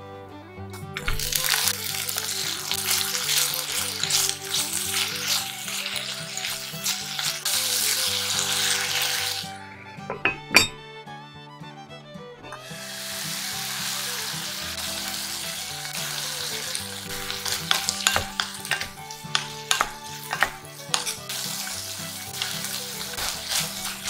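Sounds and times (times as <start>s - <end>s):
soft background music: 0.0s - 24.0s
vegetables sizzling in pot: 1.0s - 10.2s, 12.5s - 24.0s
wooden spatula scraping pot: 1.1s - 10.8s, 15.0s - 24.0s.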